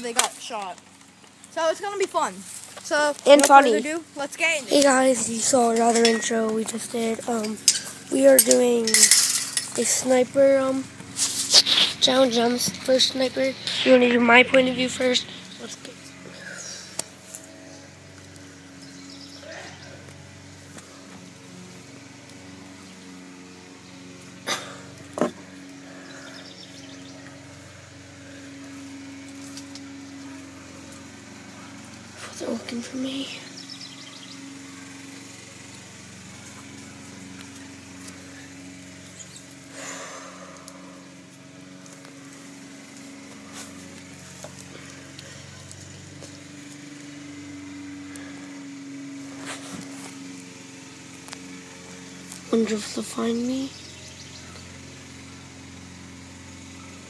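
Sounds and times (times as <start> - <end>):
mechanical hum: 0.0 - 57.0.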